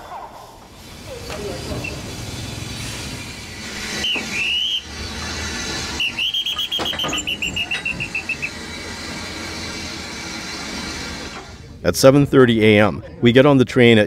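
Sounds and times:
high thin whistled notes: 0:03.6 - 0:09.0.

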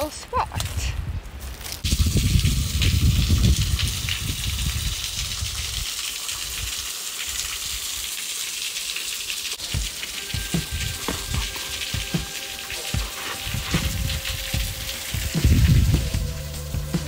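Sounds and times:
waterfall spray hissing: 0:01.8 - 0:17.0
low rumble on microphone: 0:13.4 - 0:17.0.

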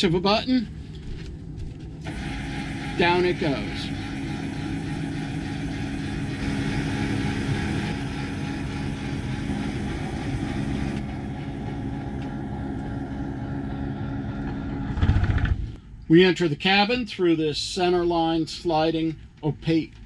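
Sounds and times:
hatch lift motor humming: 0:02.0 - 0:15.8.

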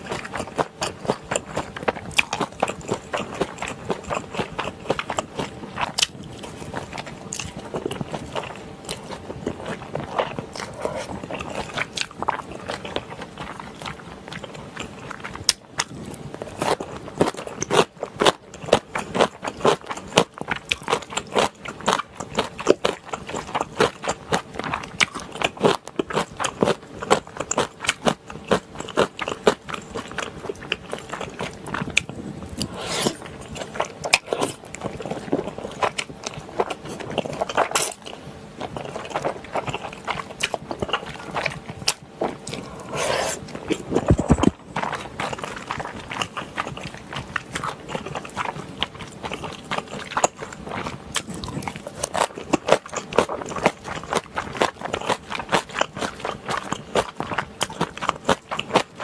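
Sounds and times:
chewing with wet mouth clicks: 0:00.0 - 0:42.8, 0:43.4 - 0:59.0
slurping noodles: 0:31.8 - 0:35.6, 0:42.4 - 0:46.9.

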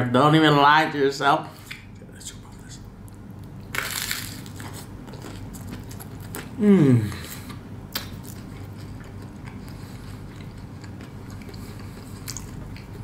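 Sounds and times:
low steady hum: 0:00.0 - 0:13.0
wet chewing sounds: 0:03.1 - 0:13.0
bread crunching: 0:03.4 - 0:06.6.

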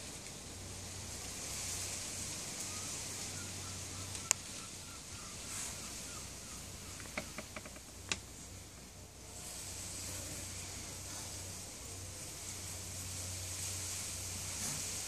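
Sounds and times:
steady outdoor hiss: 0:00.0 - 0:15.0
ball clicking on paving: 0:07.0 - 0:08.2.

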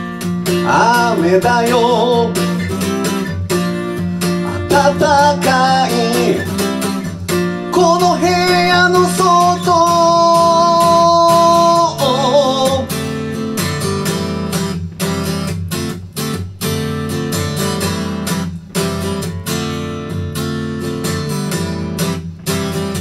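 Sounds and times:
acoustic guitar strumming: 0:00.0 - 0:23.0.

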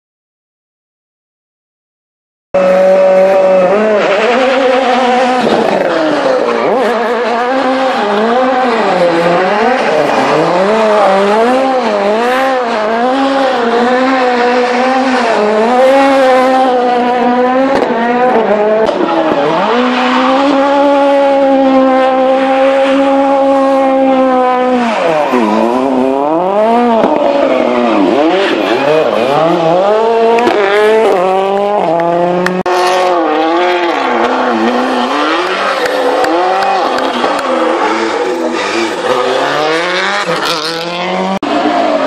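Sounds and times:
car engine revving: 0:02.6 - 0:42.0.

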